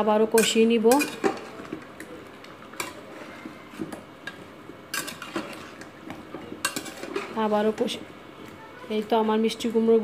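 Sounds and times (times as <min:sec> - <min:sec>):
spoon knocking and scraping pot: 0:00.4 - 0:02.0, 0:02.7 - 0:08.0.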